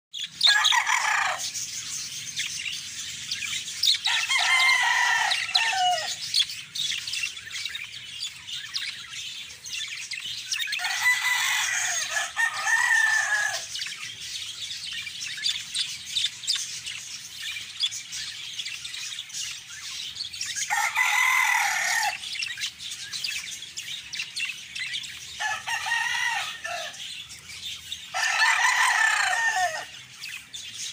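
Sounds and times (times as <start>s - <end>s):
budgerigars chattering and warbling: 0.1s - 30.9s
rooster crowing: 0.4s - 1.6s, 4.0s - 6.2s, 10.8s - 13.8s, 20.6s - 22.3s, 25.4s - 27.0s, 28.1s - 30.0s.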